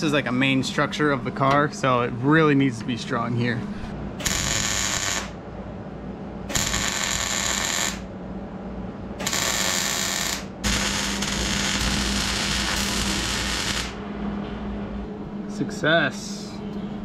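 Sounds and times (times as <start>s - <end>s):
welding arc crackling: 4.2s - 5.4s, 6.5s - 8.1s, 9.2s - 14.0s.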